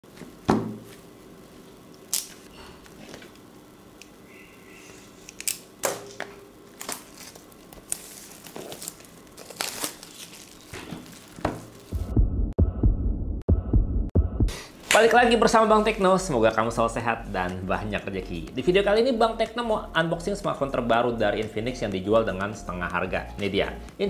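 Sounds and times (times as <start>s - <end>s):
plastic wrap crinkling and tearing: 6.7s - 12.0s
deep low thuds: 12.0s - 14.5s.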